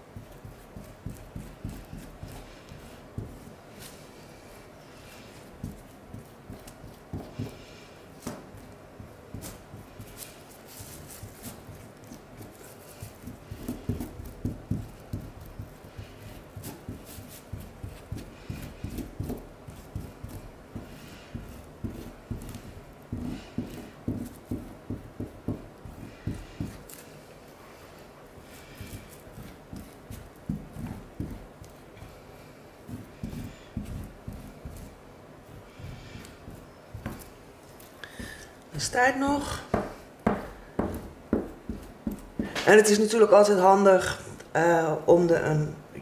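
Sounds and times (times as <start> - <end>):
fingers rubbing grout on tiles: 0.2 - 4.1, 8.5 - 27.1, 28.4 - 42.6.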